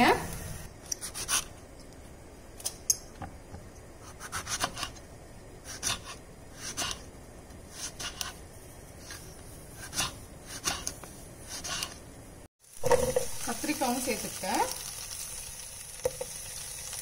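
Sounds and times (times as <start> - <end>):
knife cutting on wooden board: 4.0 - 5.0, 7.7 - 8.4, 9.8 - 12.0.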